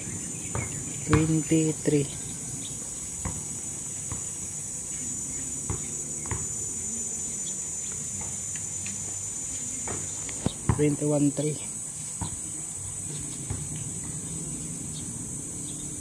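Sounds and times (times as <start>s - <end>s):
high-pitched insect chorus: 0.0s - 16.0s.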